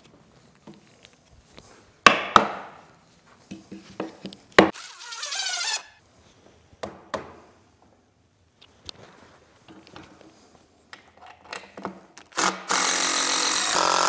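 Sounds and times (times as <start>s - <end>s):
sharp wooden knocks: 2.1s - 2.7s
cordless drill driving screw: 12.3s - 14.0s.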